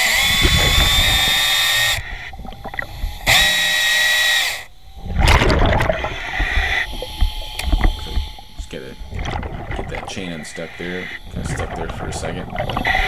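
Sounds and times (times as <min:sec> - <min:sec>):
underwater chainsaw whine: 0:00.0 - 0:13.0.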